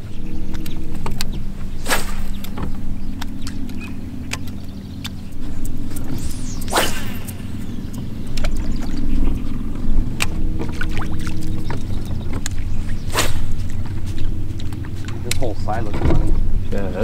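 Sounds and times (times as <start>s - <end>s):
boat motor humming: 0.0s - 17.0s
fishing rods swishing: 0.8s - 9.6s, 12.4s - 15.1s.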